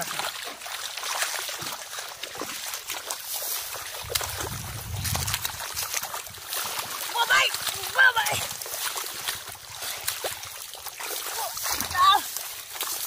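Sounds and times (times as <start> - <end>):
hands splashing in muddy water: 0.0 - 13.0
low rumble: 4.0 - 6.2.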